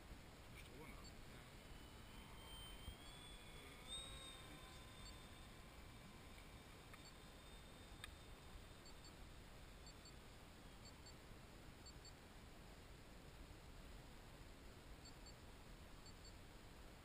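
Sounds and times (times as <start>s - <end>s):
faint steady hiss: 0.0s - 17.0s
short high paired beeps: 0.9s - 9.2s.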